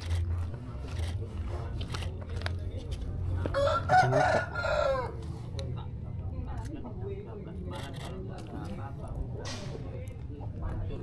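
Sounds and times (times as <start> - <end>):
rooster crowing: 3.5 - 5.2.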